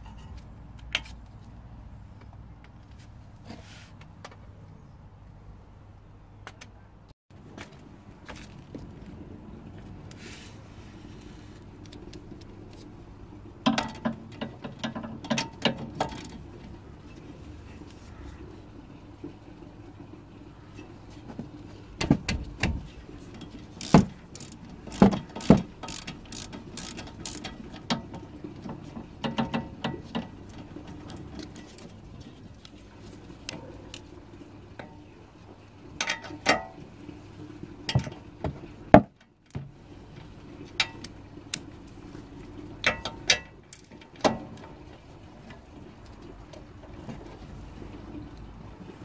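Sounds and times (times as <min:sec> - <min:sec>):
ratchet wrench clicking: 0:23.8 - 0:27.5.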